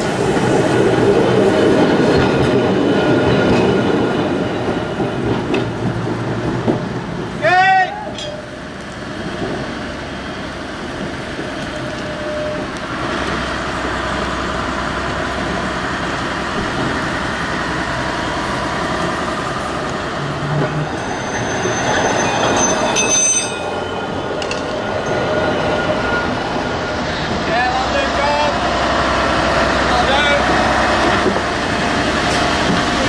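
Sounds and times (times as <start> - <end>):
tram wheels rumbling on rails: 0.0 - 33.0
thin high tones: 21.0 - 24.2.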